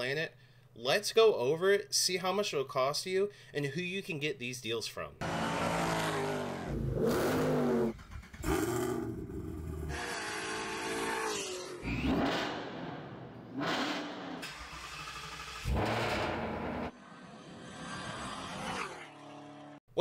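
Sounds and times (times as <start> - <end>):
car engines revving: 5.2 - 19.8.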